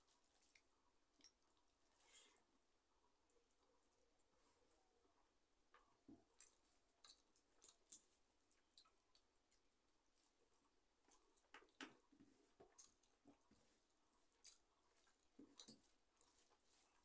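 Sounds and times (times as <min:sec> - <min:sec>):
small clicks and smacks: 0:00.3 - 0:01.7, 0:05.7 - 0:10.4, 0:11.0 - 0:13.7, 0:14.4 - 0:16.6.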